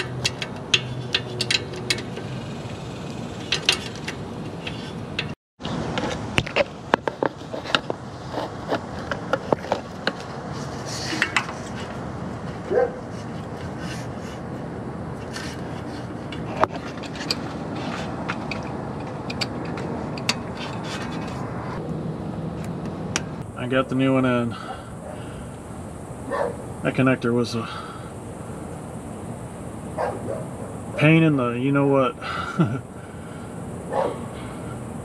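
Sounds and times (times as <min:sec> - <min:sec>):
clicks and taps of parts: 0:00.0 - 0:02.3, 0:03.5 - 0:05.4, 0:18.2 - 0:21.4
steady background noise: 0:00.0 - 0:35.0.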